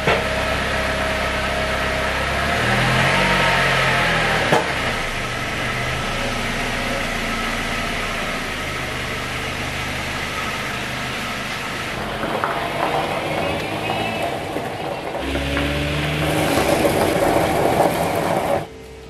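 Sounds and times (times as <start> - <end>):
car engine idling: 3.8 - 19.0.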